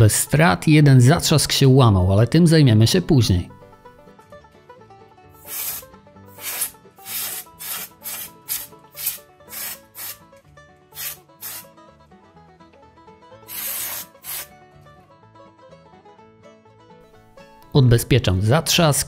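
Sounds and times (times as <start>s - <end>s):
quiet background music: 0.0s - 19.0s
gloved hands rubbing plastic: 5.4s - 5.8s, 6.4s - 10.2s, 11.0s - 11.6s, 13.5s - 14.5s.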